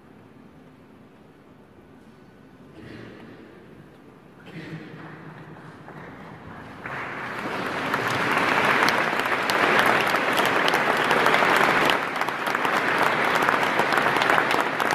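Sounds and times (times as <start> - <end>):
audience applauding: 5.7 - 14.9.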